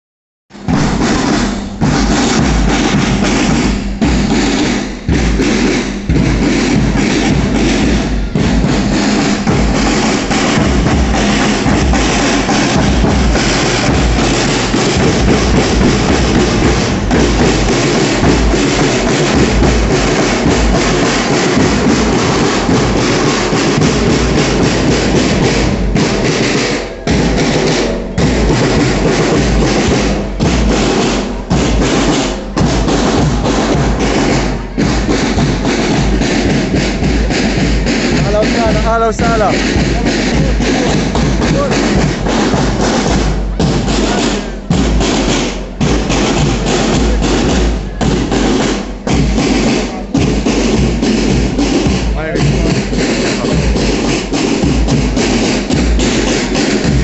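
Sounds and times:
snare drums marching beat: 0.5 - 57.0.

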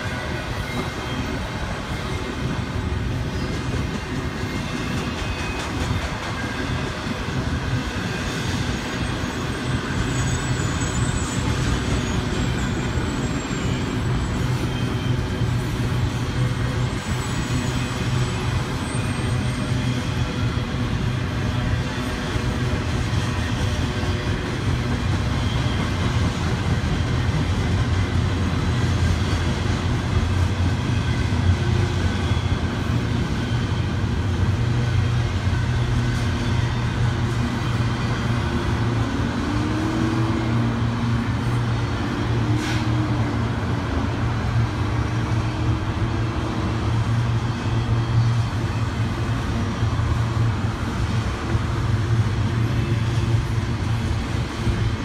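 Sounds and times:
train wheels rumbling on track: 0.0 - 55.0
faint high squeals: 8.0 - 20.5.

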